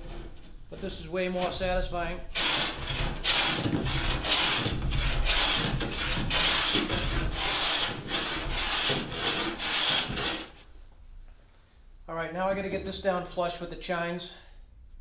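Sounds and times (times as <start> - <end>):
hand plane shaving wood: 2.4 - 10.5.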